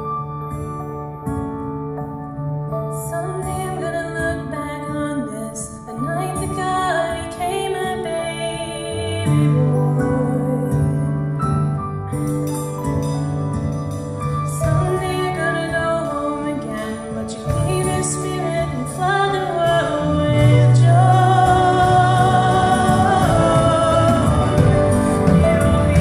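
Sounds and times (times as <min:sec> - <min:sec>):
acoustic guitar: 0:00.0 - 0:26.0
woman singing lead: 0:02.9 - 0:11.8, 0:14.5 - 0:26.0
drum kit: 0:12.2 - 0:15.9, 0:17.5 - 0:19.0, 0:19.7 - 0:26.0
second woman singing: 0:14.6 - 0:26.0
electric bass: 0:19.5 - 0:26.0.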